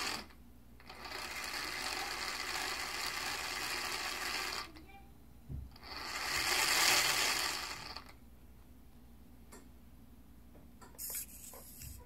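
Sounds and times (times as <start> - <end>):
small electric motor whirring: 0.0 - 0.3, 0.9 - 4.7, 5.8 - 8.2.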